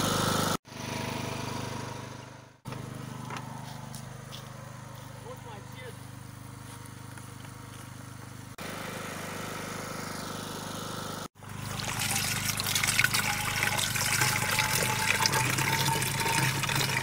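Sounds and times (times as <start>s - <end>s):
water pouring from a hose: 11.4s - 17.0s.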